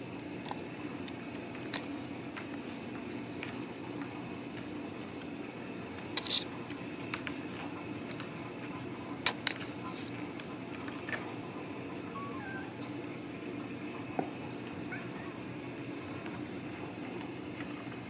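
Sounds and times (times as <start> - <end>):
steady low hum: 0.0 - 18.0
kittens scrambling with clicks and taps: 6.0 - 12.9.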